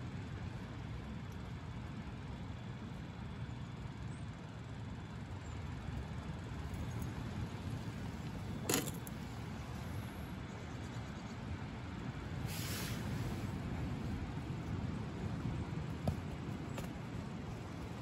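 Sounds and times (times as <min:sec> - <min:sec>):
metal mug clinking: 0:08.6 - 0:09.1.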